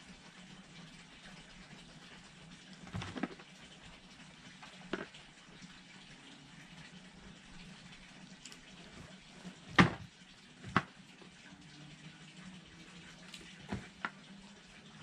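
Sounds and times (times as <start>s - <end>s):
faint steady background noise: 0.0s - 15.0s.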